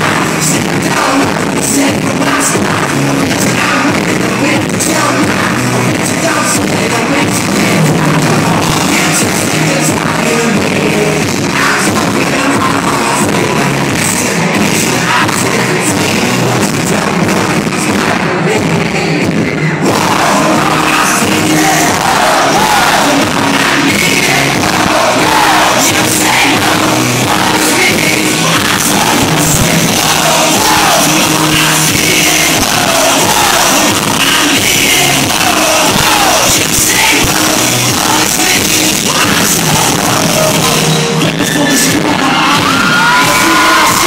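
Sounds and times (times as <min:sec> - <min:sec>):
crowd noise: 0:00.0 - 0:44.0
live band playing loudly: 0:00.0 - 0:44.0
person singing: 0:00.0 - 0:44.0.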